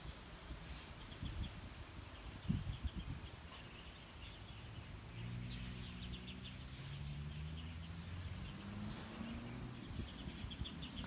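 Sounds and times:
birds chirping: 0:00.0 - 0:11.0
engine humming: 0:04.0 - 0:11.0.

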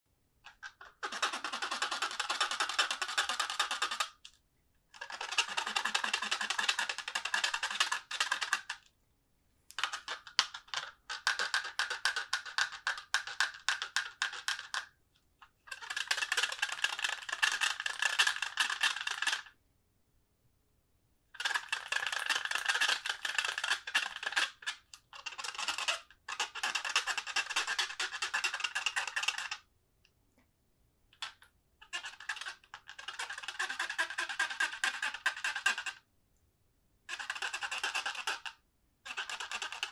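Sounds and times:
fast squeaky rubbing: 0:05.0 - 0:07.9, 0:21.6 - 0:29.6, 0:31.8 - 0:36.0, 0:39.1 - 0:39.9.

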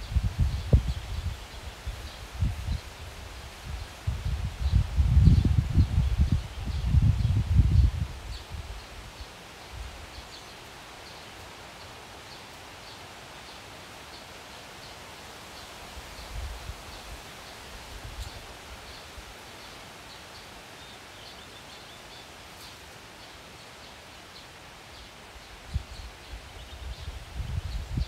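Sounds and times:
wind buffeting microphone: 0:00.0 - 0:09.2, 0:25.7 - 0:28.0
steady hiss: 0:00.0 - 0:28.0.

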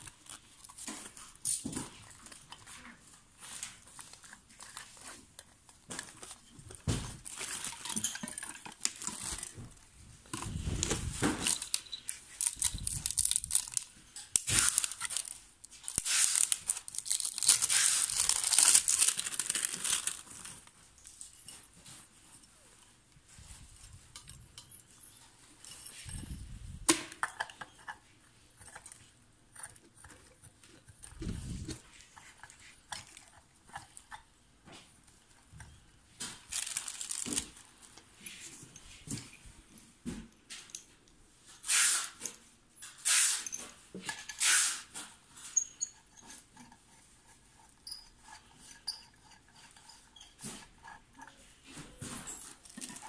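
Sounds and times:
plastic wrapping rustling: 0:00.0 - 0:22.8, 0:35.4 - 0:39.3
metal tubes clinking: 0:07.4 - 0:09.4
metal parts clicking: 0:11.4 - 0:19.8.

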